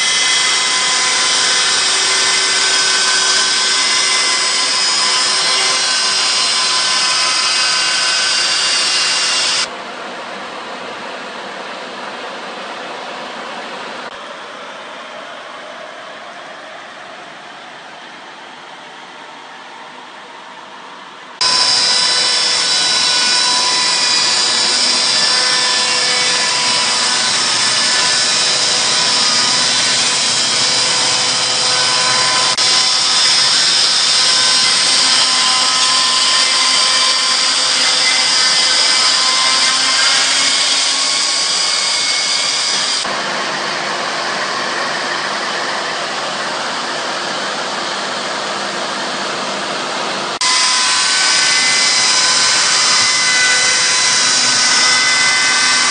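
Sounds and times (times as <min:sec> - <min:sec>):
chainsaw mill cutting log: 0:00.0 - 0:09.7, 0:21.4 - 0:43.2.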